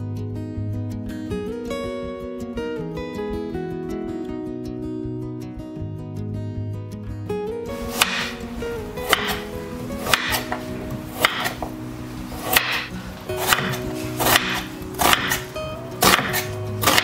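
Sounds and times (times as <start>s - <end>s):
background music: 0.0s - 17.0s
knife chopping on cutting board: 7.8s - 8.4s, 9.0s - 11.7s, 12.4s - 17.0s.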